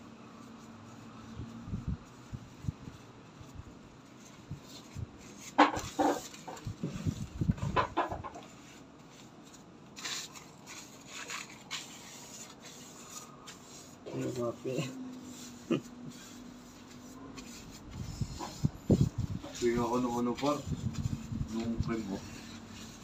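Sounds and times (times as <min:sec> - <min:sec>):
tissue rubbing over skin: 0:08.5 - 0:23.0.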